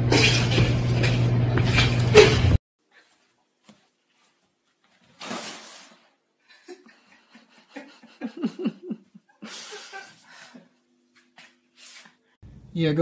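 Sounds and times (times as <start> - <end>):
person laughing: 6.5 - 10.7.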